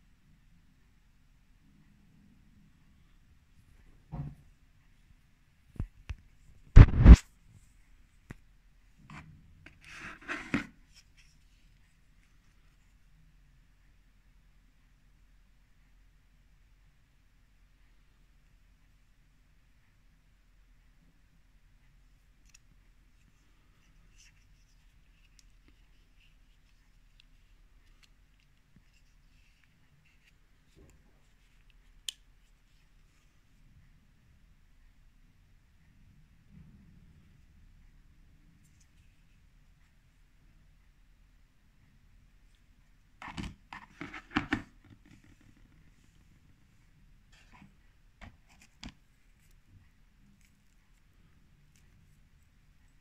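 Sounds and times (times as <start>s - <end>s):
soft rustle: 5.8s - 13.2s, 22.0s - 34.0s, 42.3s - 53.0s.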